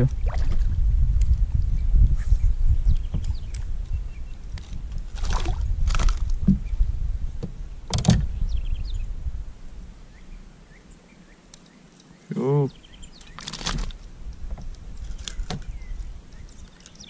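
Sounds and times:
knocks and scrapes on kayak: 0:04.6 - 0:06.8.

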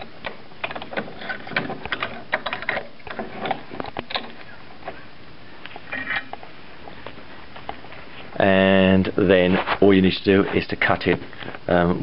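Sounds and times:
metal clamp clicking and knocking: 0:00.2 - 0:04.4.

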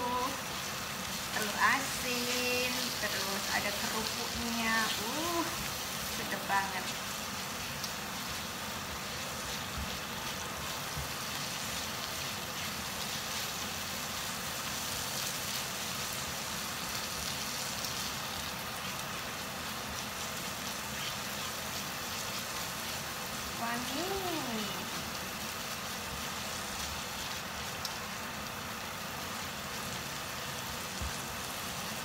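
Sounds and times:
spice paste sizzling in a wok: 0:00.0 - 0:32.0
spatula stirring in a wok: 0:00.4 - 0:24.0.

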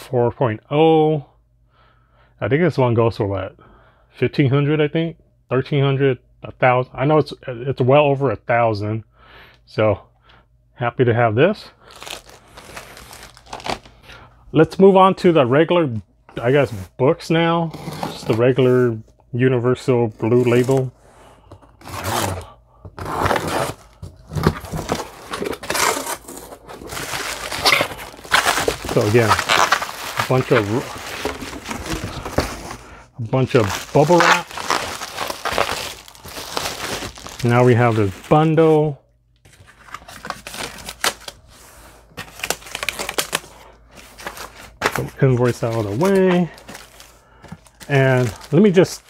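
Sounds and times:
plastic wrap crinkling: 0:11.8 - 0:14.0, 0:23.1 - 0:38.7, 0:42.2 - 0:49.0
cardboard flaps scraping and rustling: 0:23.0 - 0:38.4.

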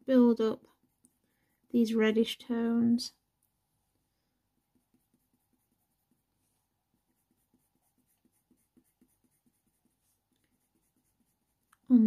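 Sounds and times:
coloured pencil scratching on paper: 0:00.2 - 0:01.8, 0:04.5 - 0:11.9.

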